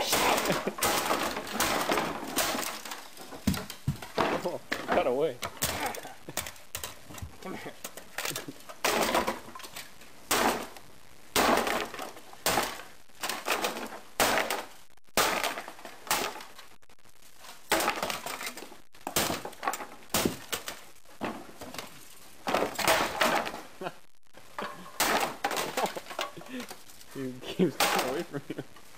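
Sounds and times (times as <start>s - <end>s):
plastic case being smashed: 0.0s - 16.6s, 17.5s - 23.7s, 24.6s - 26.9s, 27.6s - 28.3s.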